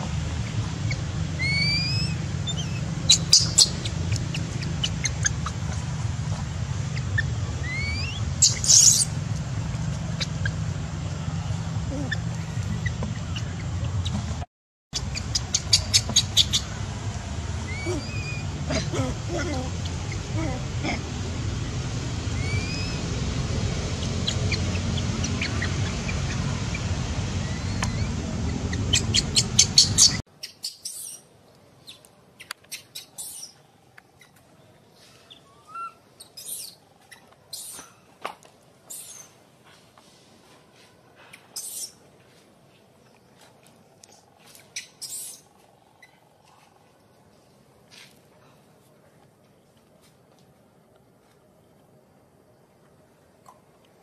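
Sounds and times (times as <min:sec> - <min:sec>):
steady low rumble: 0:00.0 - 0:30.2
high rising chirps: 0:00.4 - 0:05.8, 0:06.8 - 0:10.7, 0:21.6 - 0:31.2
baby monkey squeaking: 0:00.5 - 0:05.8, 0:06.9 - 0:09.1, 0:15.0 - 0:16.7, 0:17.7 - 0:20.6, 0:22.4 - 0:23.0, 0:27.4 - 0:31.3, 0:31.9 - 0:33.6, 0:35.3 - 0:37.8, 0:38.9 - 0:39.3, 0:41.6 - 0:42.0, 0:44.7 - 0:46.2.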